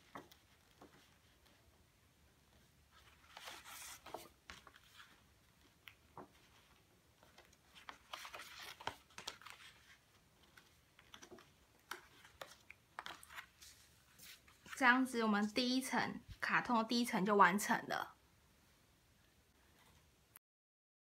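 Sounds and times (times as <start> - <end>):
card paper rustling and crinkling: 2.9 - 14.8.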